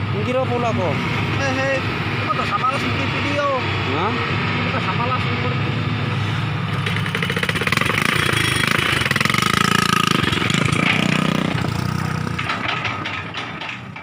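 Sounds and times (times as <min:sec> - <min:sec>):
excavator diesel engine under load: 0:05.4 - 0:14.0.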